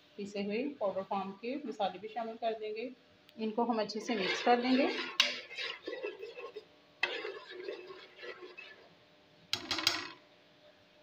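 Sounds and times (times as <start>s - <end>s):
spoon stirring in cooking pot: 3.9s - 9.0s.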